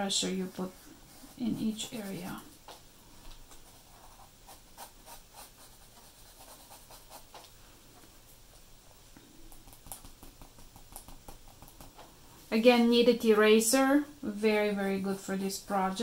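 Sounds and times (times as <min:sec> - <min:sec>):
pencil scratching on paper: 0:01.0 - 0:02.6, 0:03.6 - 0:07.4.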